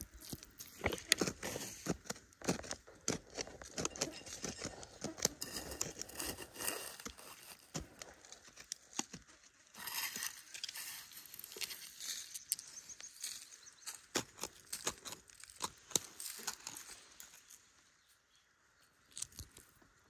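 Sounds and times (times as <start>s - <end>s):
small stones clicking: 0.0s - 17.6s, 19.0s - 19.8s
metal blade scraping gravelly soil: 0.2s - 1.9s, 3.7s - 8.4s, 9.6s - 17.6s.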